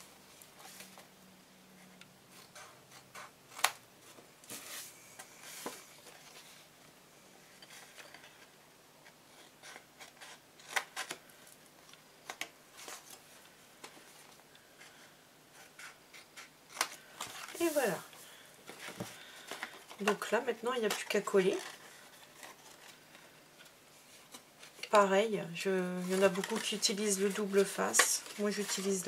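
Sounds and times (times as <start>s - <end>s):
paper rustling: 12.2s - 24.9s, 25.9s - 29.0s.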